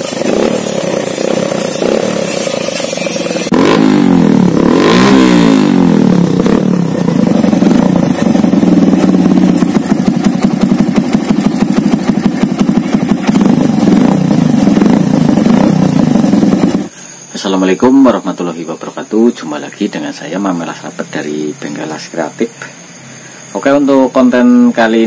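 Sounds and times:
motorcycle engine idling: 0.0s - 17.0s.

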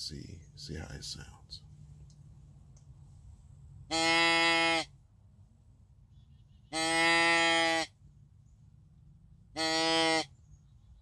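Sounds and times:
deer call bleat: 3.9s - 4.9s, 6.7s - 8.0s, 9.5s - 10.3s.

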